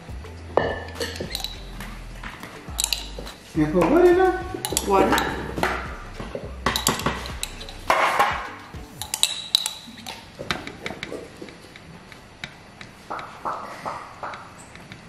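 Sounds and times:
metal spoon clinking on glass jar: 2.7s - 3.4s, 4.6s - 5.4s, 6.7s - 7.9s, 9.0s - 10.2s
spoon tapping in foil pan: 6.7s - 10.0s.

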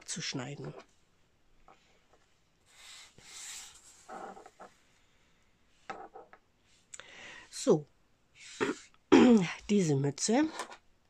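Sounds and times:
paper and scissors sliding on table: 2.7s - 4.2s.

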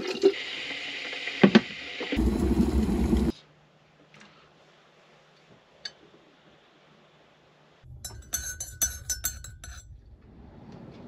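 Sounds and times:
teaspoon clinking in mug: 8.0s - 9.8s.

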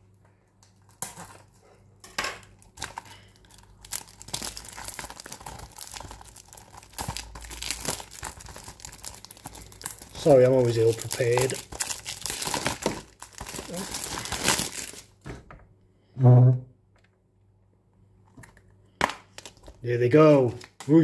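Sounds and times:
plastic packaging crinkling: 2.6s - 15.2s, 19.2s - 21.0s.

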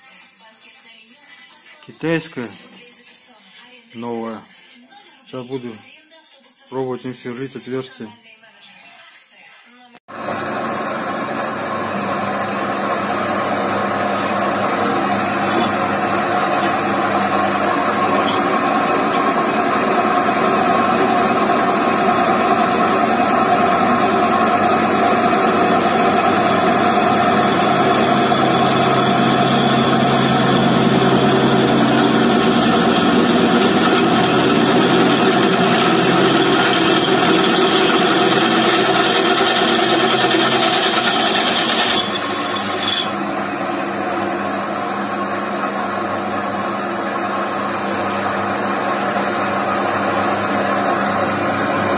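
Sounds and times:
drill press motor humming: 10.2s - 45.1s.

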